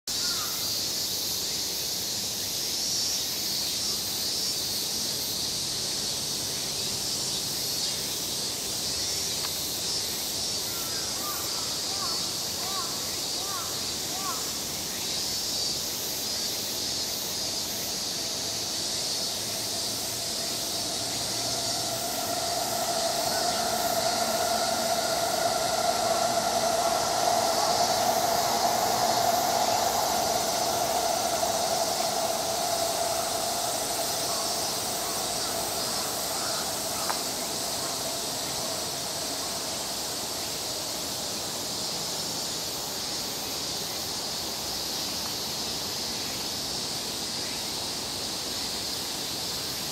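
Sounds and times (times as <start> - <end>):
high buzzing hiss: 0.1 - 49.9
squealing tone: 19.6 - 38.9.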